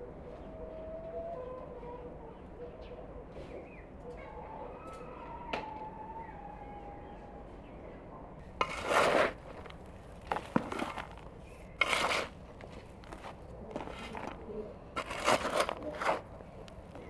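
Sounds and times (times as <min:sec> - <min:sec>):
metal scoop scraping soil: 0:08.6 - 0:16.4.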